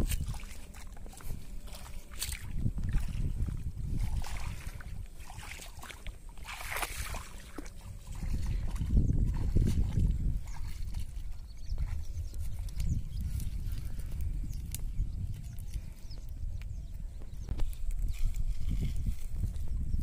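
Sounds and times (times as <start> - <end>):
water splashing and sloshing: 0.0 - 14.8.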